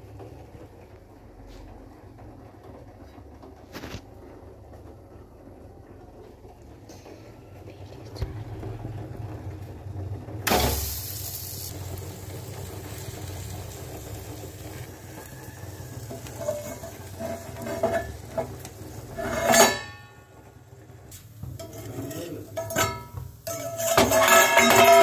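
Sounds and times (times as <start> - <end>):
low frying noise: 0.0 - 25.0
bread sizzling in a pan: 8.3 - 25.0
metal plate clanking on pan: 15.2 - 20.5, 21.4 - 25.0.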